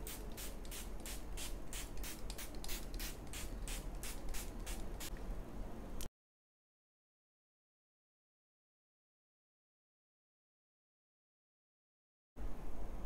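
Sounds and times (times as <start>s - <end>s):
spray bottle spritzing: 0.0s - 5.1s.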